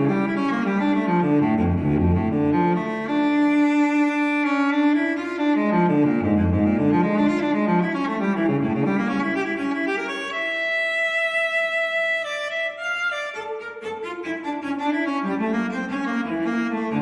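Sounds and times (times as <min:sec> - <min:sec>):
solo cello playing slowly: 0:00.0 - 0:17.0.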